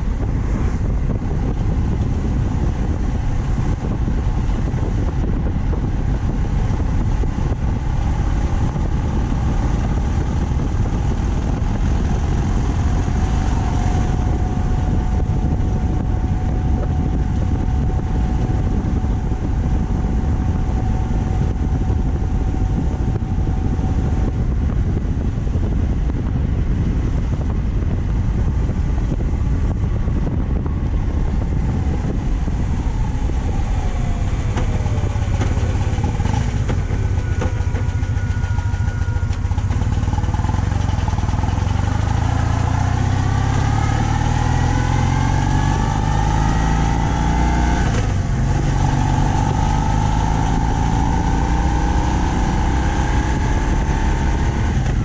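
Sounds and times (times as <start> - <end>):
motorcycle engine running: 0.0 - 55.0
steady whine: 0.0 - 55.0
wind and road rush: 0.0 - 55.0
falling whines: 32.3 - 46.9.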